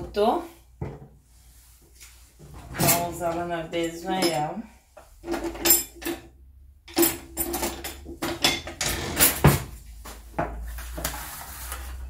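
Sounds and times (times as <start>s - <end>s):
cutlery clinking in a drawer: 5.2s - 6.3s, 6.9s - 9.7s.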